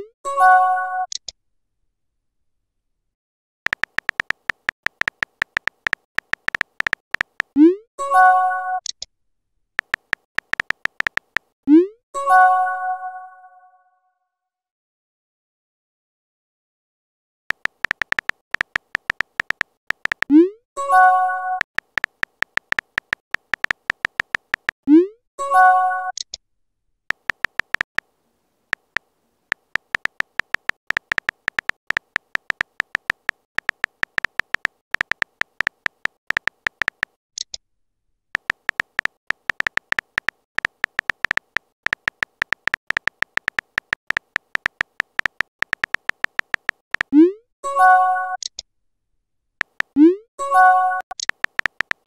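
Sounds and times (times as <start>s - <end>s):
phone keyboard typing clicks: 3.7s - 7.6s, 9.8s - 11.6s, 17.5s - 20.5s, 21.6s - 24.8s, 27.1s - 28.1s, 28.7s - 37.6s, 38.4s - 47.2s, 49.6s - 50.0s, 51.1s - 52.0s.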